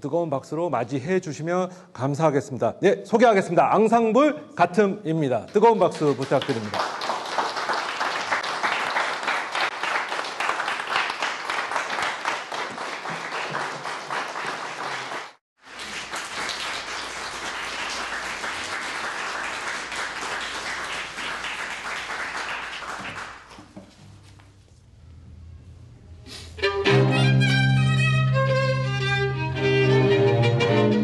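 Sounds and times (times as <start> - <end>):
audience applauding: 5.6 - 23.6.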